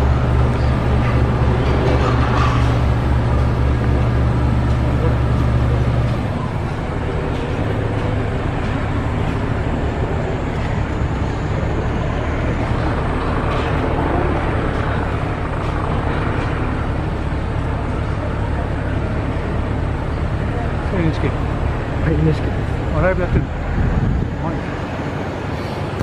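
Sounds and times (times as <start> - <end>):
heavy machinery engine humming: 0.0 - 26.0
outdoor street noise: 0.0 - 26.0.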